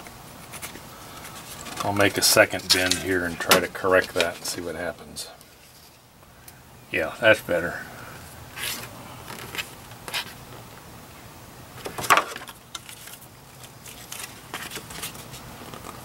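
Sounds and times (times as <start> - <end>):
cardboard rustling and scraping: 0.4 - 4.7, 5.4 - 6.0, 8.5 - 10.4, 11.8 - 16.0.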